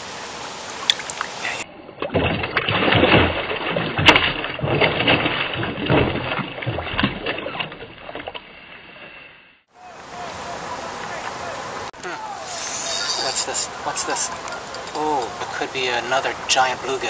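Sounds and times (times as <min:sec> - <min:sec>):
short steady hiss: 0:12.4 - 0:13.7.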